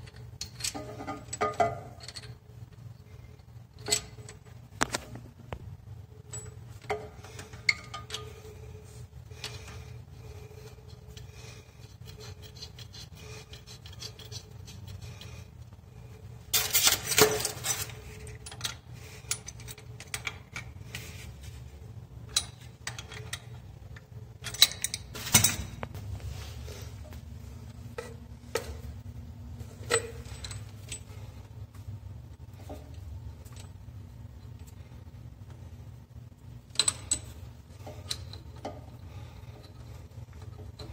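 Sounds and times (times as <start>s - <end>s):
pliers scraping on metal nut: 11.8s - 15.4s.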